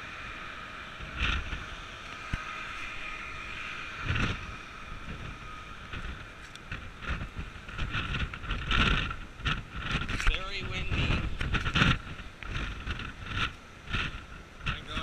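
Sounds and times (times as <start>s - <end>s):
steady rushing noise: 0.0s - 15.0s
wind buffeting microphone: 0.0s - 15.0s.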